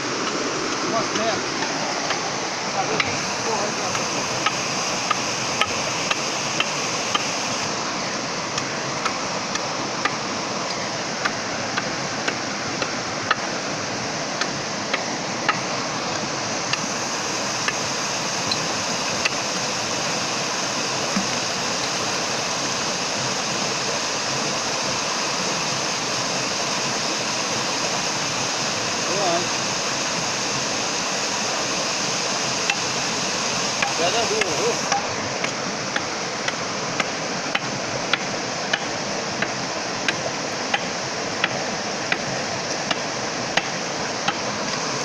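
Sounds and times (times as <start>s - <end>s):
stream water running over rocks: 0.0s - 45.0s.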